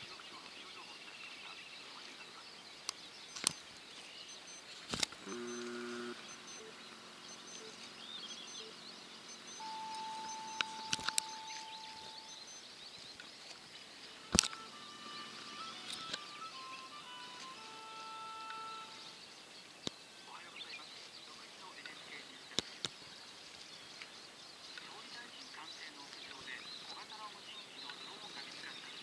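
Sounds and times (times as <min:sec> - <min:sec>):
small birds chirping faintly: 0:00.0 - 0:29.0
sharp clicks: 0:02.9 - 0:03.7, 0:04.3 - 0:12.5, 0:14.2 - 0:14.8, 0:15.6 - 0:16.3
thin steady tone: 0:04.2 - 0:12.6
brief low pitched tone: 0:09.5 - 0:12.4.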